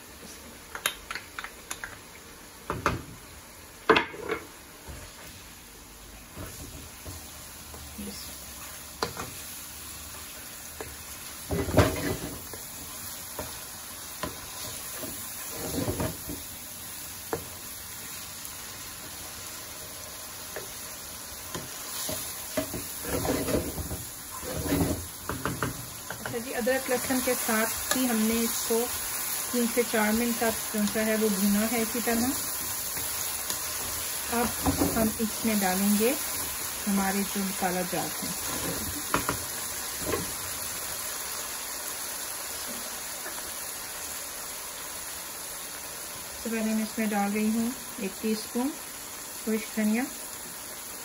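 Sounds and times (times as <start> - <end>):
chicken sizzling in frying pan: 4.5 - 51.0
wooden spatula stirring and scraping: 14.2 - 16.4, 21.5 - 28.8.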